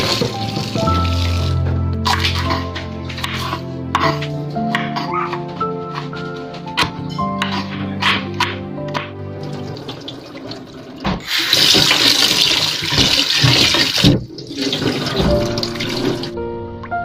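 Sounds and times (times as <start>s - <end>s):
tap water running into sink: 0.0s - 2.5s, 9.4s - 16.4s
soft background music: 0.0s - 10.8s, 14.9s - 17.0s
water splashing: 9.4s - 16.4s.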